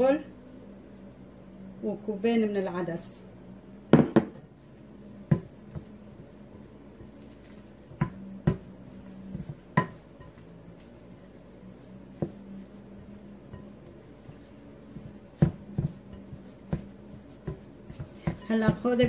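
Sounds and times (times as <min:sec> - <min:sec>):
spoon stirring food in bowl: 0:05.2 - 0:19.0.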